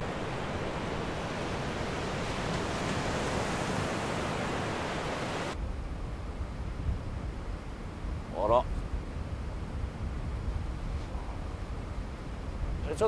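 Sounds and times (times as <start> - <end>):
small waves washing onto sand: 0.0 - 5.6
wind rumble on microphone: 0.0 - 13.0.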